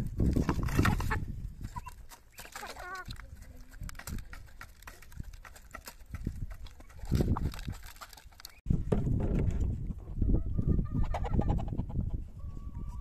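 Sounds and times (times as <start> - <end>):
hens clucking: 0.3 - 3.6, 10.0 - 13.0.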